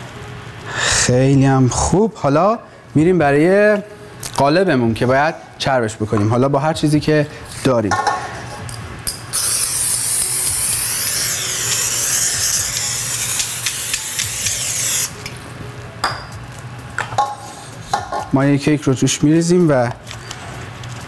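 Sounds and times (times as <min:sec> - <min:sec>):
aerosol spray hissing: 0:09.4 - 0:15.1.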